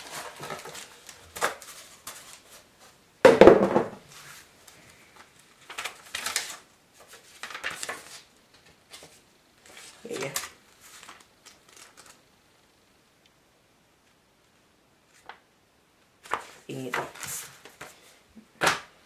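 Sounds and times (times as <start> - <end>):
cardboard and paper rustling: 0.0 - 3.0, 4.1 - 12.2, 16.2 - 18.2.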